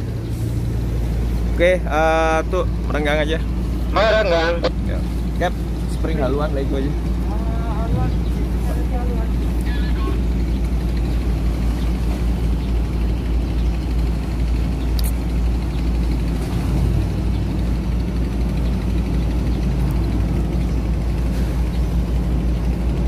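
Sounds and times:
ship engines rumbling: 0.0s - 23.0s.

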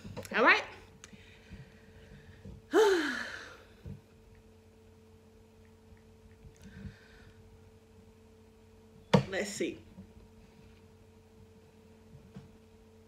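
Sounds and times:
faint steady hum: 0.0s - 13.0s
woman sighing: 2.7s - 3.8s.

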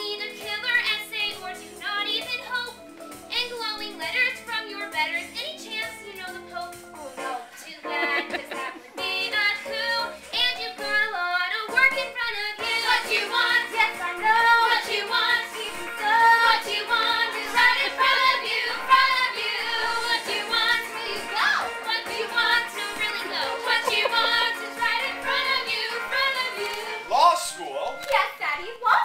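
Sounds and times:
instrumental accompaniment: 6.0s - 11.0s, 12.6s - 28.2s
young female voices singing: 7.1s - 27.1s.

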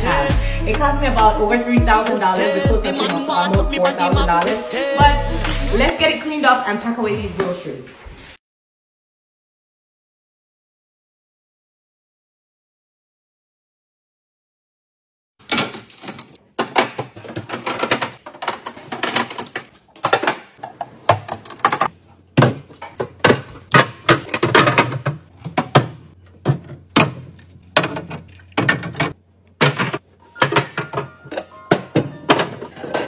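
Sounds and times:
plastic bins knocking on glass shelves: 15.5s - 33.0s.

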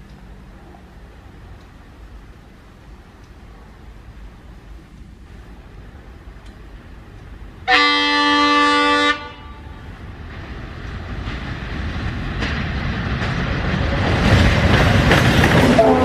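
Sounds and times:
diesel locomotive engines: 0.0s - 16.0s
train rolling: 0.0s - 16.0s
train air horn blast: 7.7s - 9.8s, 15.6s - 16.0s.

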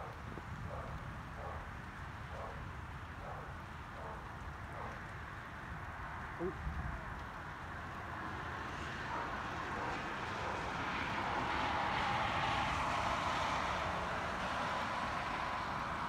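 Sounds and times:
vehicle passing: 8.0s - 16.0s.

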